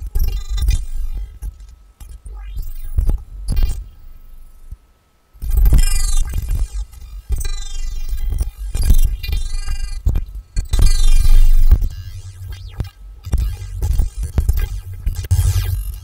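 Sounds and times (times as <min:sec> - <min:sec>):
sharp electronic clicks: 0:05.4 - 0:16.0.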